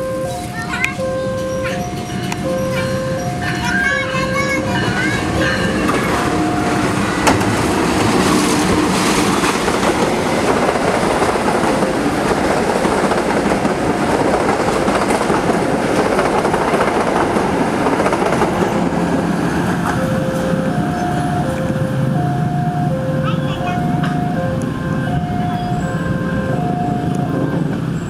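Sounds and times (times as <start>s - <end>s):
train wheels rumbling on rails: 0.0s - 28.0s
clickety-clack over rail joints: 0.3s - 28.0s.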